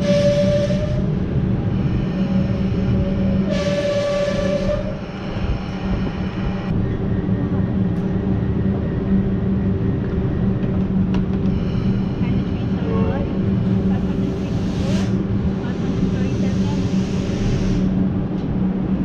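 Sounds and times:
train electrical hum: 0.0s - 19.0s.

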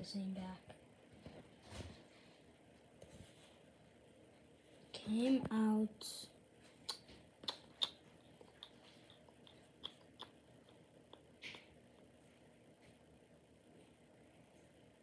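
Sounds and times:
soft rustle: 1.2s - 3.8s.

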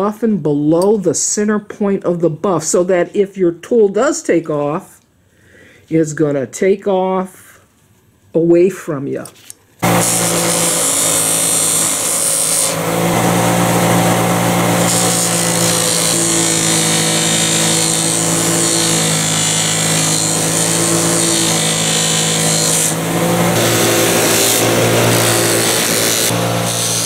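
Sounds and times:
bench buffer motor hum: 9.8s - 27.0s.

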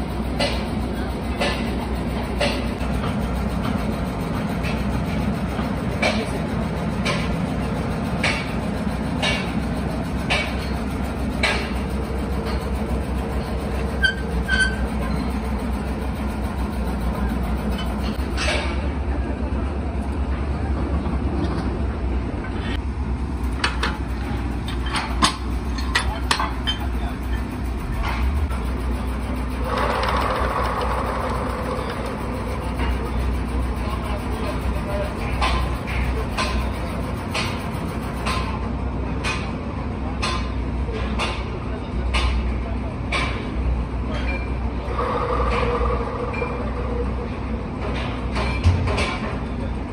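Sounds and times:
workshop machinery hum: 0.0s - 49.9s
machine humming: 29.4s - 33.3s.

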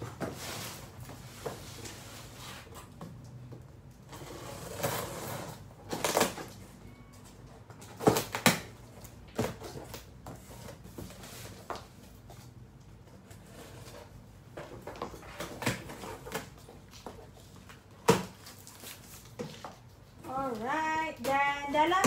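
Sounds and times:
packaging rustling: 15.4s - 20.1s.

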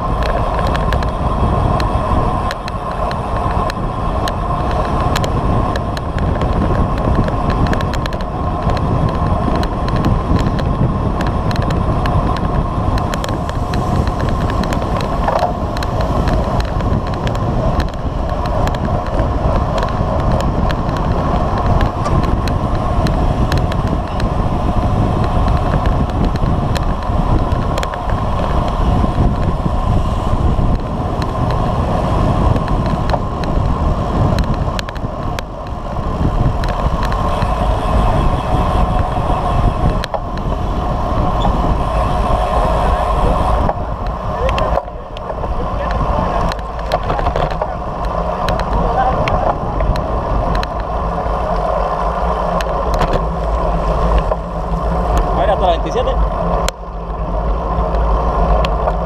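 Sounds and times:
bike tyres rolling on asphalt: 0.0s - 59.0s
wind rushing over microphone: 0.0s - 59.0s
small ticks and knocks: 1.8s - 24.3s, 36.5s - 37.6s, 43.6s - 50.9s.

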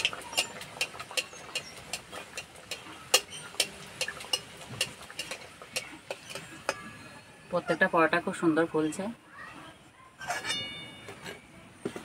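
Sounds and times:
metal spatula scraping iron pan: 0.0s - 8.0s, 10.2s - 11.5s
hot oil sizzling: 0.0s - 8.9s.

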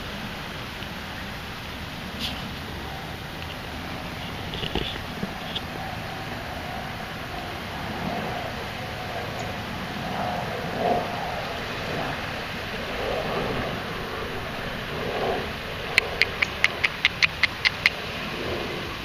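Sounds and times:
background hiss: 0.0s - 6.4s.

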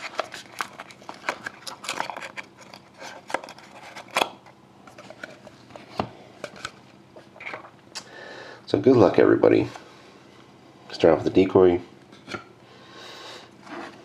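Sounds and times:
cards clicking and scraping: 0.0s - 6.8s.

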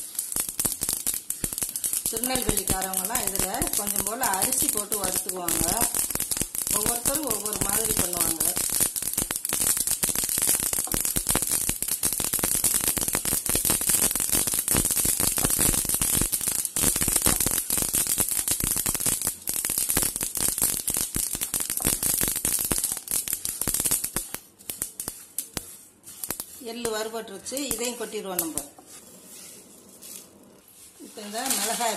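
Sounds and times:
seeds popping in hot pan: 0.0s - 31.9s.

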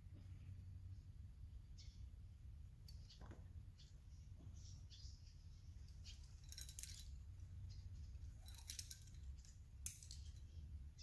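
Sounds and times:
climbing hardware jingling: 5.8s - 11.0s.

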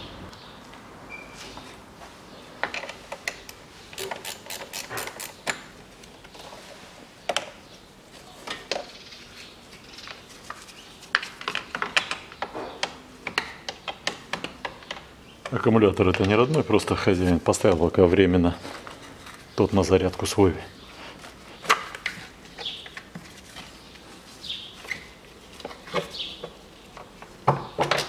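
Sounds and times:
ratchet wrench clicking: 4.0s - 5.4s.

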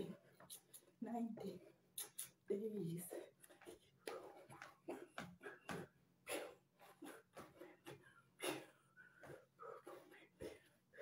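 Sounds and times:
person breathing: 3.1s - 11.0s.

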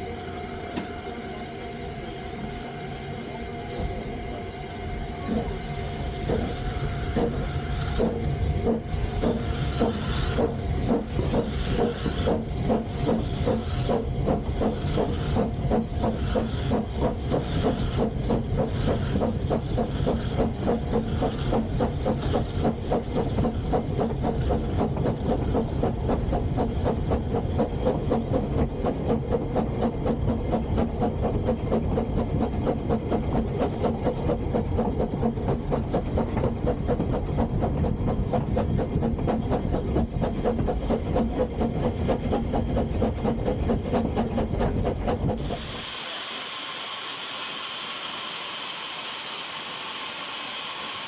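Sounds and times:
steam locomotive chuffing: 0.0s - 51.0s
hiss of steam: 5.1s - 23.6s, 45.4s - 51.0s.

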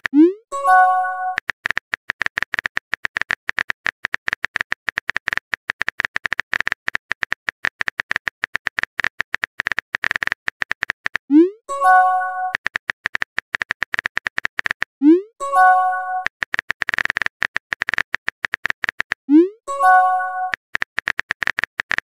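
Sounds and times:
phone keyboard typing clicks: 0.0s - 22.0s
message chime: 15.4s - 16.3s, 19.7s - 20.5s.

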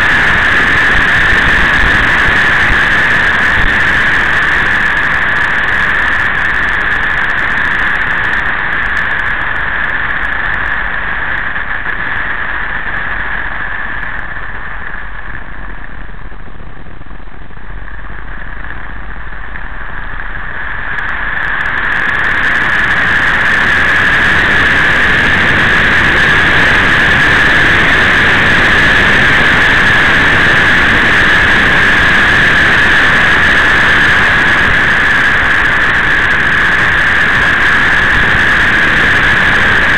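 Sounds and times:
high-pitched hum: 0.0s - 39.9s
motorcycle engine: 0.0s - 39.9s
wind rushing over microphone: 0.0s - 39.9s.

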